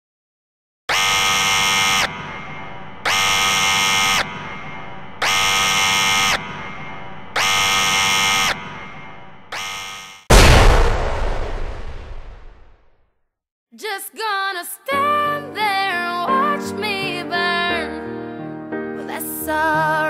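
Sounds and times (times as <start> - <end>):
electronic buzzer tones: 0.9 - 10.2
loud explosion: 10.3 - 12.9.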